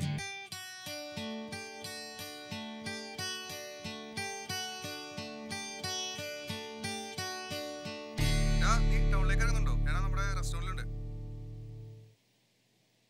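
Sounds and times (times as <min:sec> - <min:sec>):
acoustic guitar picking: 0:00.0 - 0:12.1
loud low hum: 0:08.2 - 0:12.0.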